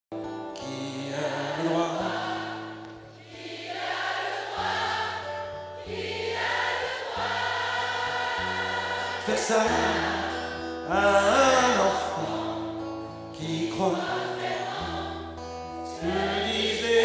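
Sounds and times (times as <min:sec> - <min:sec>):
acoustic guitar and band: 0:00.1 - 0:17.0
man singing: 0:00.5 - 0:02.5, 0:09.2 - 0:14.9, 0:15.7 - 0:17.0.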